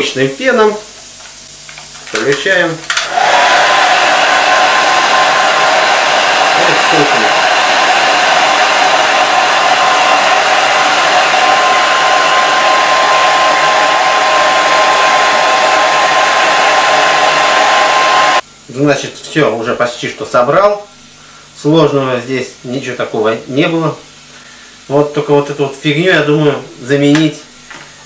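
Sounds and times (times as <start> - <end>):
hair dryer blowing with whine: 2.1 - 18.4.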